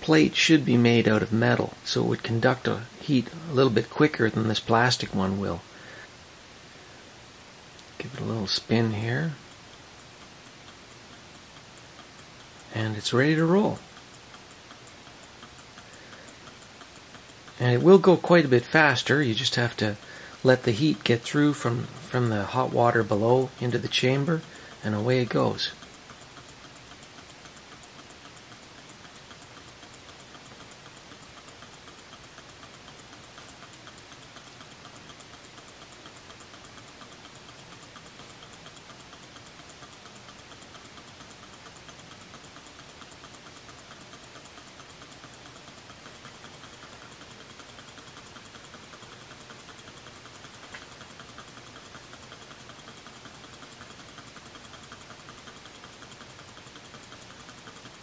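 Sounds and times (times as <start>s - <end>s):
faint hiss: 0.0s - 41.8s
stirling engine ticking: 0.0s - 58.0s.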